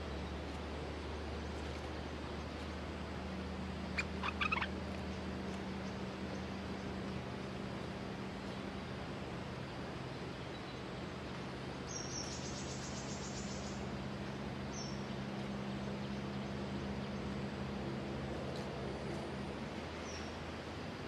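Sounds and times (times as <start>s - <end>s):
background hiss and low hum: 0.0s - 21.0s
bird trill: 3.9s - 4.7s
high-pitched bird chirps: 4.0s - 4.7s.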